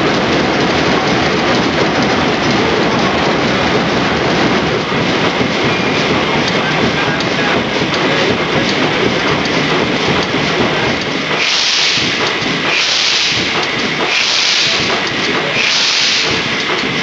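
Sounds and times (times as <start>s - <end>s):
diesel engine clattering: 0.0s - 17.0s
loud hiss bursts: 11.3s - 17.0s.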